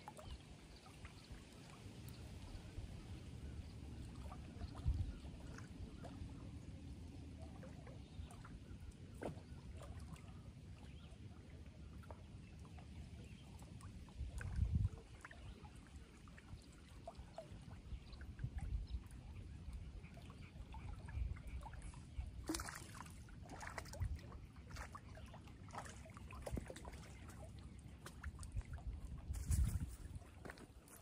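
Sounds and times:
wind rumbling on microphone: 0:02.4 - 0:06.3, 0:14.0 - 0:15.5, 0:17.8 - 0:20.0, 0:28.4 - 0:31.0.

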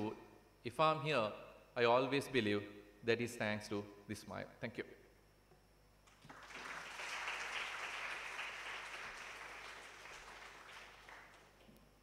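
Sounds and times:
audience applauding: 0:06.1 - 0:11.6.

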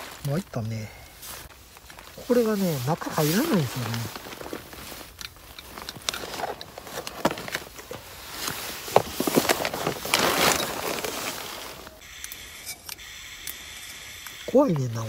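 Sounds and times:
gear rustling and crinkling: 0:00.0 - 0:12.0.

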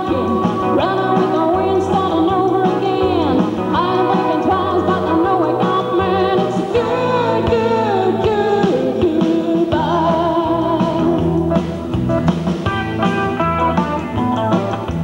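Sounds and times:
pedal steel guitar: 0:00.0 - 0:09.0, 0:09.8 - 0:15.0
acoustic guitar: 0:00.0 - 0:15.0
drums: 0:00.0 - 0:15.0
electric bass: 0:00.0 - 0:15.0.

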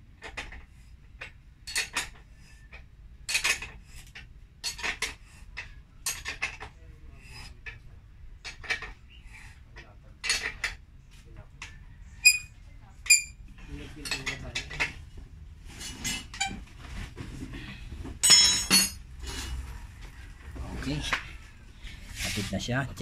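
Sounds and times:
wrench clinking on axle nut: 0:18.2 - 0:19.0.

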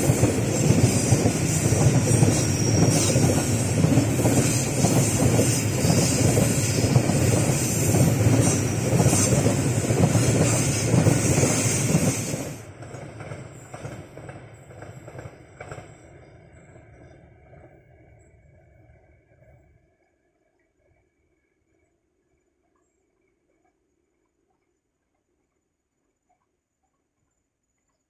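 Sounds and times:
freight train wheels rumbling: 0:00.0 - 0:18.5.

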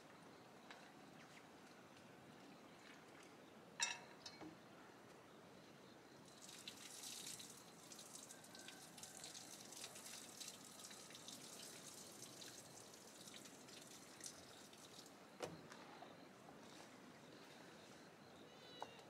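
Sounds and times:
water splashing and dripping: 0:06.3 - 0:15.2.

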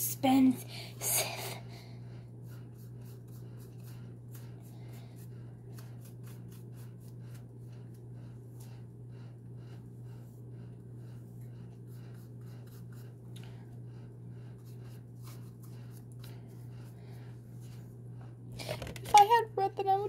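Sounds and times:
steady low hum: 0:00.0 - 0:20.0
paintbrush strokes: 0:02.4 - 0:08.8, 0:11.0 - 0:13.3, 0:14.0 - 0:18.0.

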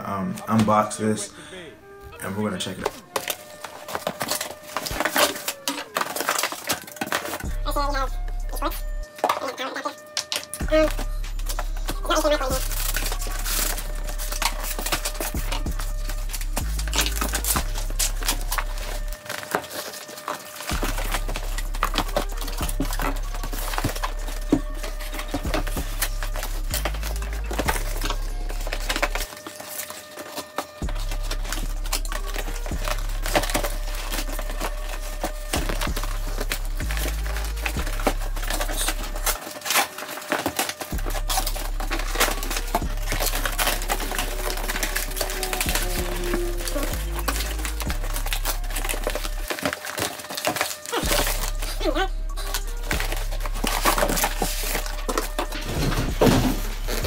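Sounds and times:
plastic wrap crinkling: 0:02.1 - 0:57.0
cardboard box rustling and scraping: 0:03.2 - 0:07.5, 0:52.5 - 0:57.0
background music with bass line: 0:10.5 - 0:19.2, 0:20.7 - 0:29.3, 0:30.8 - 0:39.4, 0:40.9 - 0:49.5, 0:51.0 - 0:57.0
cardboard box knocks and scrapes: 0:55.6 - 0:57.0.

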